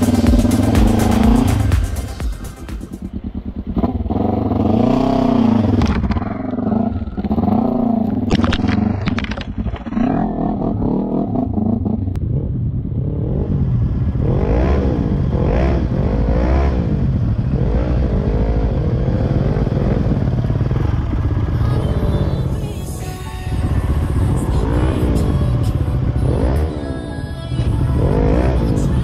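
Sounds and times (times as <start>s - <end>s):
quad engine revving: 0.0s - 29.0s
quad engine running: 0.0s - 29.0s.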